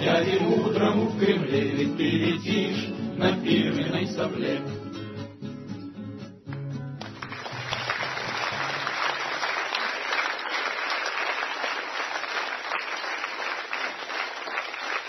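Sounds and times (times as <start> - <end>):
audience applauding: 7.0 - 15.0.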